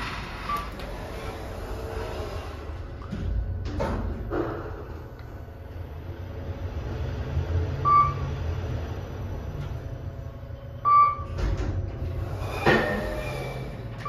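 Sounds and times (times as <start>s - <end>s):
elevator hum: 0.0s - 14.0s
short electronic beeps: 7.8s - 8.3s, 10.8s - 11.3s.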